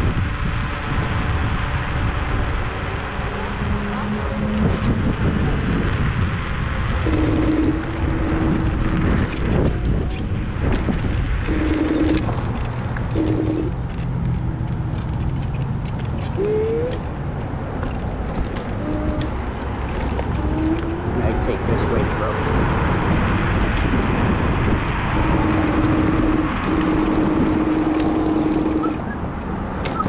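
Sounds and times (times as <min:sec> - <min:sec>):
wind and road rush: 0:00.0 - 0:30.0
electric motor humming tone: 0:18.7 - 0:21.7, 0:25.1 - 0:29.0.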